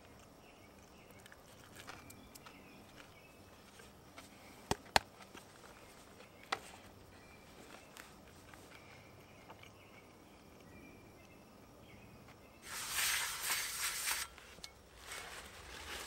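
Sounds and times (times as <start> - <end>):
paper towel scratching metal pan: 12.6 - 14.4.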